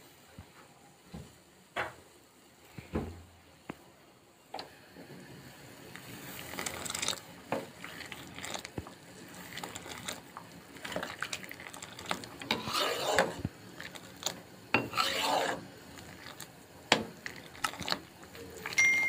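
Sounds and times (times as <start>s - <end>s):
water boiling in a pot: 0.0s - 19.0s
ladle sloshing liquid: 6.3s - 18.8s.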